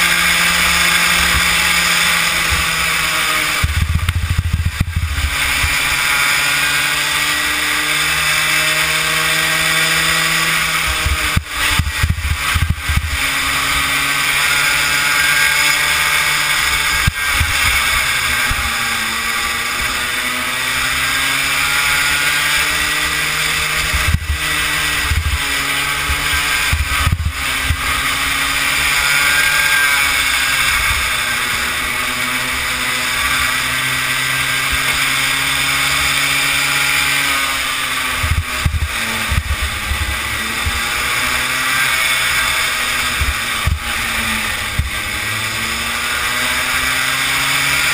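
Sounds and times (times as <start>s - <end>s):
small kart engine racing: 0.0s - 47.9s
wind buffeting rumble: 2.2s - 5.9s, 10.7s - 13.4s, 23.6s - 28.3s.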